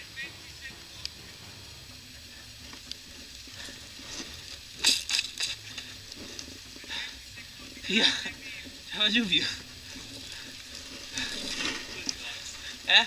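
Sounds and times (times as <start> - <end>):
faint steady hiss: 0.0 - 13.0
dry leaves crunching underfoot: 3.0 - 13.0.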